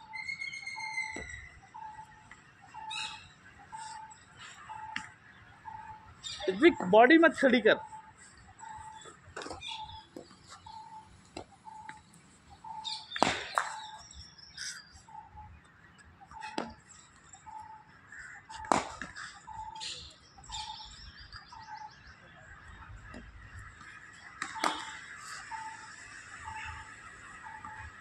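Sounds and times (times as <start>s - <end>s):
birds chirping: 0.0s - 28.0s
cricket bat striking ball: 13.1s - 13.9s, 18.5s - 19.2s, 24.4s - 25.0s.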